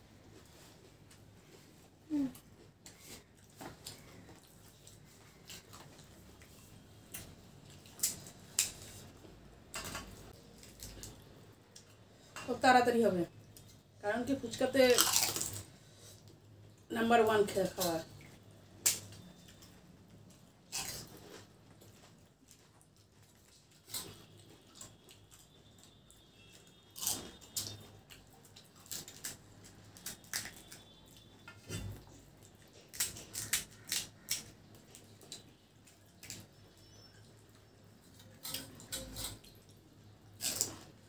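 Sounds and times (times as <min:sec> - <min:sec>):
crisp shells cracking and crunching: 0:14.8 - 0:15.7, 0:27.0 - 0:29.4, 0:30.0 - 0:30.9, 0:32.8 - 0:36.5.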